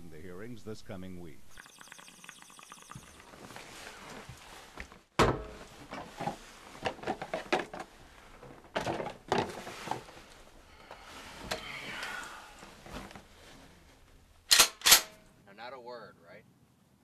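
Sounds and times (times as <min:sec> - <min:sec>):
knocks and rattles in closet: 0:04.9 - 0:11.8
loud thunk: 0:05.2 - 0:05.6.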